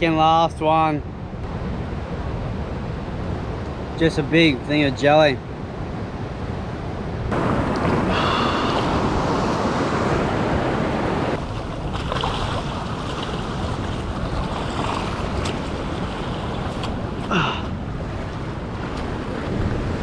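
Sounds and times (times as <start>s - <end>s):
wind on microphone: 5.7s - 20.0s
surf washing over rocky shore: 7.3s - 20.0s.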